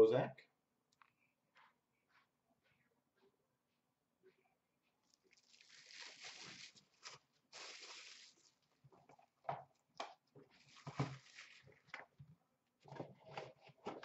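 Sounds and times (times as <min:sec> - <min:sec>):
plastic shrink-wrap crinkling: 0:05.1 - 0:08.8, 0:10.5 - 0:12.0.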